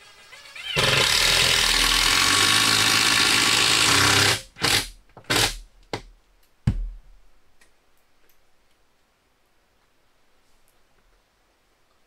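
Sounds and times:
power drill driving screw: 0.0 - 5.6
sharp drill clicks: 0.6 - 5.6.

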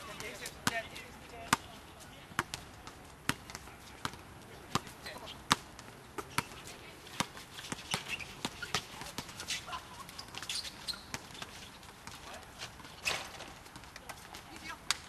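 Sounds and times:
basketball bouncing on hard court: 2.4 - 4.9.

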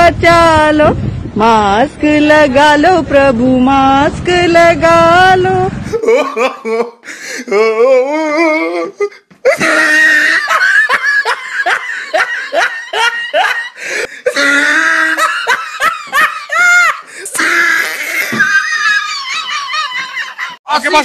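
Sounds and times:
hearty laughter: 5.9 - 7.2, 9.4 - 20.6.

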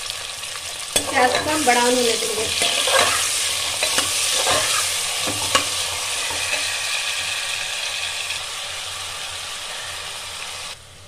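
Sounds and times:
onions sizzling in hot oil: 0.0 - 10.8
ladle scraping a metal pot: 2.6 - 7.2.

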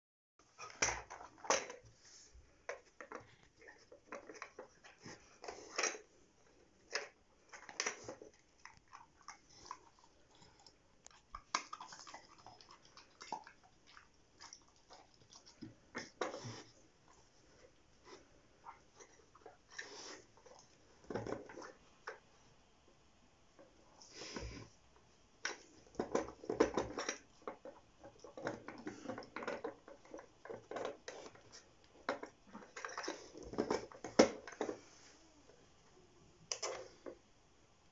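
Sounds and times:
puppy chewing: 7.8 - 16.6.

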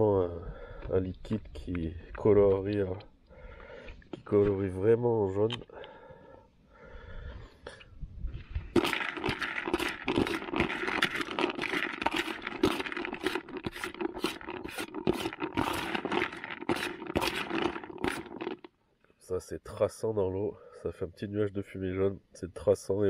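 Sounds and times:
spoon stirring baits in bucket: 8.8 - 18.7.

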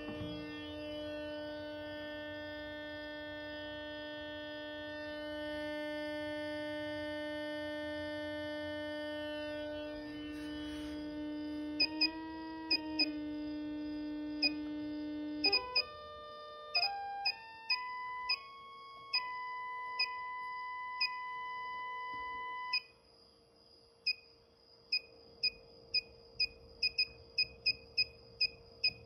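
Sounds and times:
coil buzzing tone: 0.0 - 29.0.

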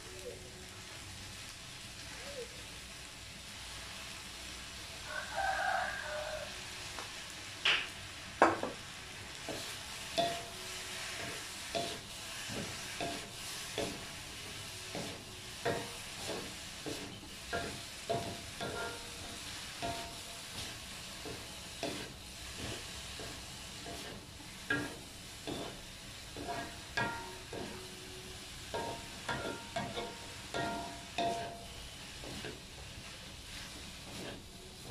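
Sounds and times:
food sizzling: 0.0 - 34.9
rooster crowing: 5.0 - 6.7
wooden spatula scraping a wok: 9.4 - 27.8, 28.8 - 34.9.

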